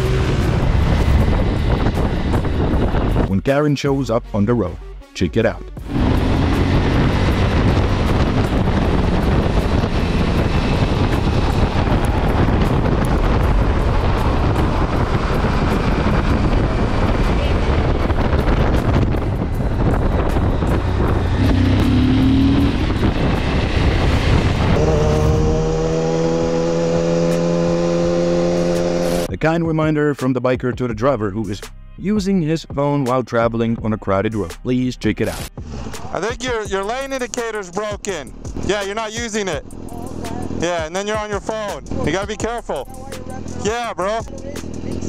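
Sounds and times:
motorcycle engine: 0.0s - 3.3s, 5.8s - 29.3s, 39.6s - 40.8s
road noise: 0.0s - 3.4s, 5.7s - 29.3s, 35.3s - 45.0s
wind rush on microphone: 0.0s - 3.4s, 5.8s - 29.0s.

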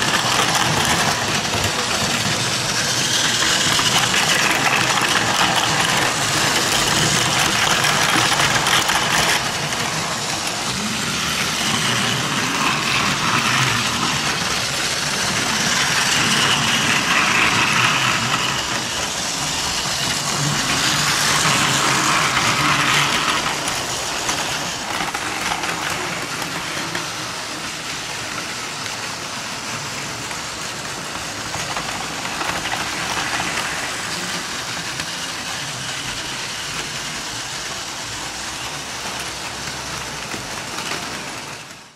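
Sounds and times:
toy train motors whirring: 0.0s - 41.9s
toy train wheels rattling: 0.0s - 41.9s.

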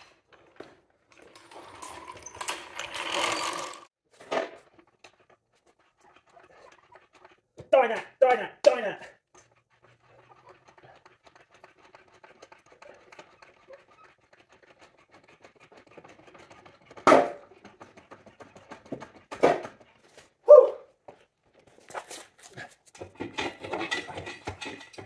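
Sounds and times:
trolley jack clicking and creaking: 1.1s - 3.9s.

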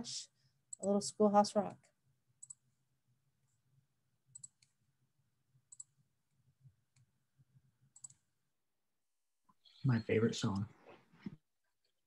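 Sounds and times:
computer mouse clicks: 2.4s - 2.6s, 4.3s - 4.8s, 5.7s - 6.0s, 7.9s - 8.2s.

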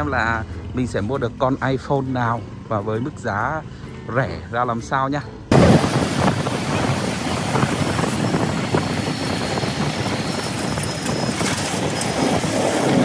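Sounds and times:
rumble of engines and road noise: 0.0s - 13.0s
wind rushing over microphone: 5.5s - 13.0s.

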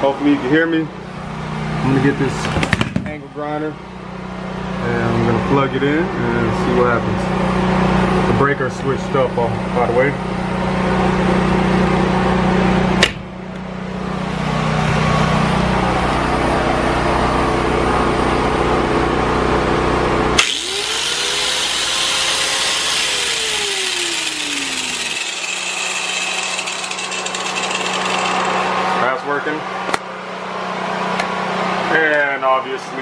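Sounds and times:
generator engine humming: 0.0s - 33.0s
angle grinder whining: 20.2s - 29.0s.

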